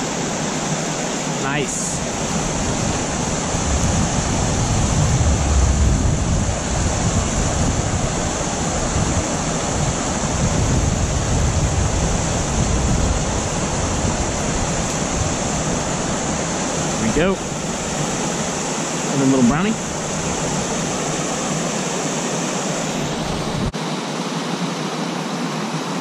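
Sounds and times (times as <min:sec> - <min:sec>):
creek water flowing: 0:00.0 - 0:23.7
wind buffeting microphone: 0:02.0 - 0:18.7, 0:22.8 - 0:23.8.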